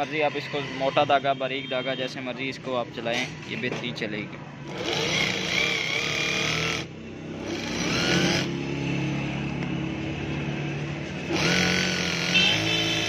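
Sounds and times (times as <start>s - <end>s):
sewing machine stitching: 11.3s - 13.0s.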